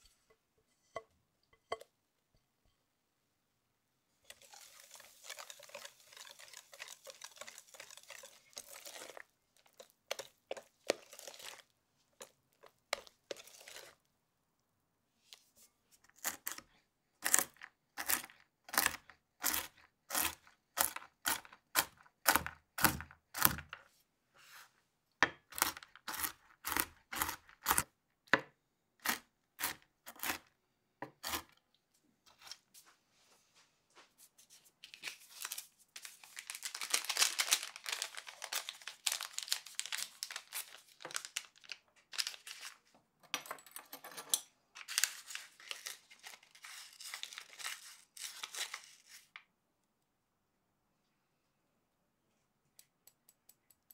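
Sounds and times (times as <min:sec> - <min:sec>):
paper packet crinkling and tearing: 0:34.8 - 0:42.9, 0:44.8 - 0:49.4.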